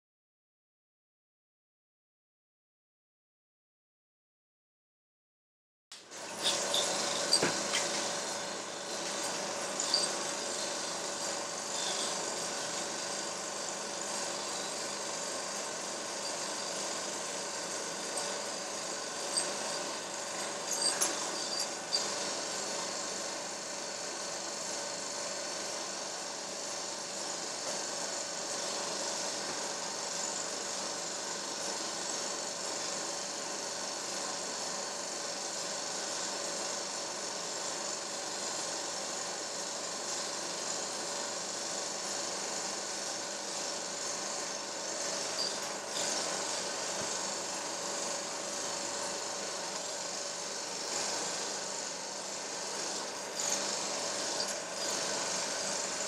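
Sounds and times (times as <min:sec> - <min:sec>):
motor whirring: 0:06.2 - 0:22.5.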